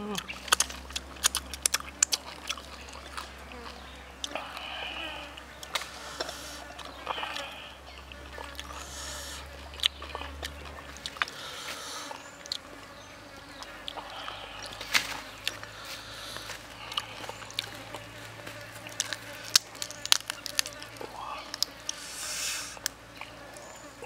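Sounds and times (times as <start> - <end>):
chicken leg pulled apart: 18.9 - 22.0.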